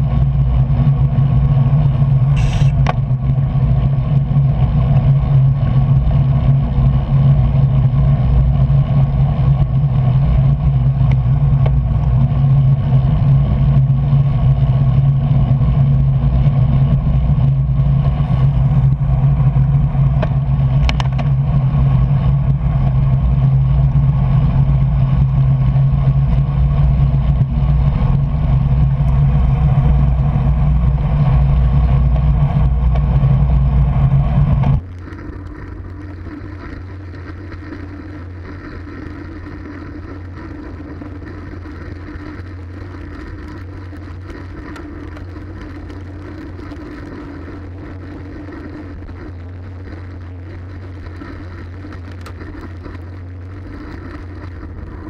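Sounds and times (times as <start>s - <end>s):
bicycle tyre noise: 0.0s - 55.0s.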